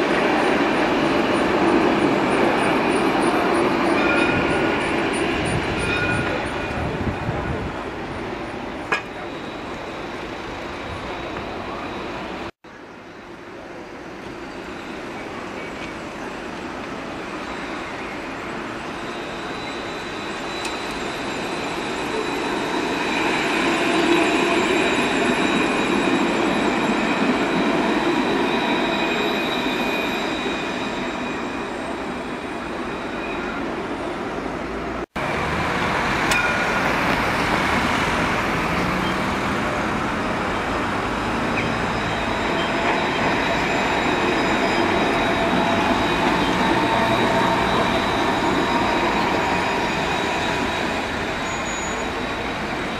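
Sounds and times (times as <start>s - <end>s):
street traffic: 0.0s - 52.9s
tram approaching: 0.0s - 52.9s
tram passing with rolling rumble: 0.0s - 52.9s
high whining tones: 39.7s - 52.9s.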